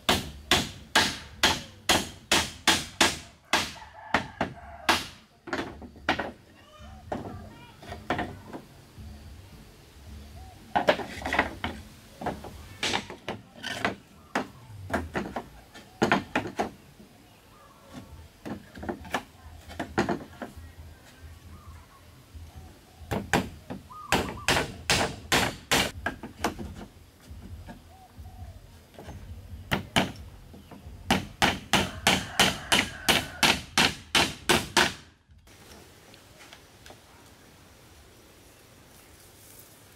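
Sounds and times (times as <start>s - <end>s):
hammer driving nails into wood: 0.0s - 3.8s, 24.1s - 26.8s, 31.1s - 35.1s.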